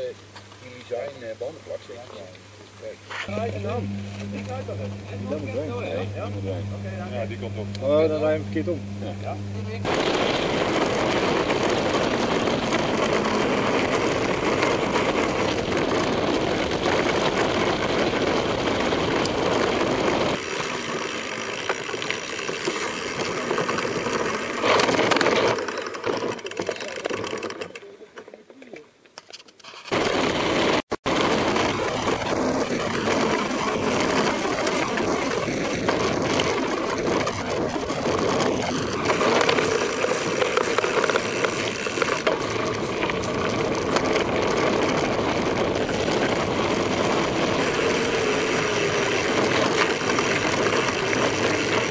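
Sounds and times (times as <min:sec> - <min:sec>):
bike rattling: 0:09.6 - 0:28.7, 0:29.3 - 0:51.9
tyres crunching over loose stones: 0:29.2 - 0:51.9.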